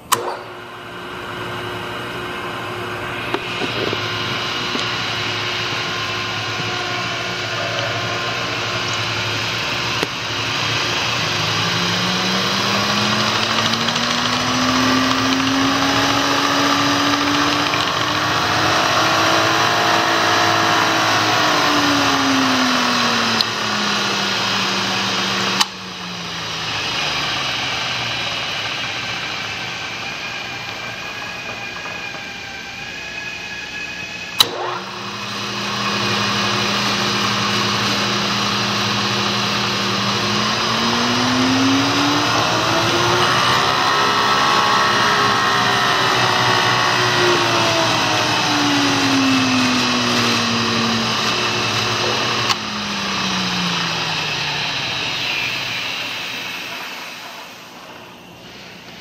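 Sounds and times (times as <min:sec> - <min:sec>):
machine switch click: 0:00.0 - 0:00.6
milling machine spindle running: 0:00.0 - 0:59.0.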